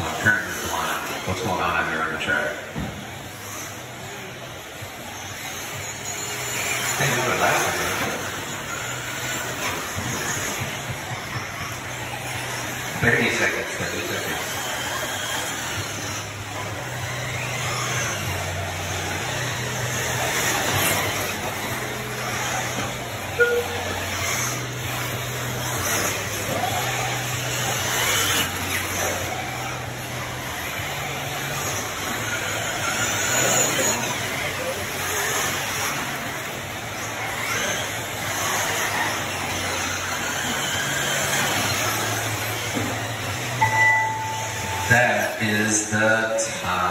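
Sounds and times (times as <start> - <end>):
rc car motors whining: 0.0 - 46.9
tyres and running cars din: 0.0 - 46.9
short electronic beep: 23.4 - 24.0, 43.6 - 44.9.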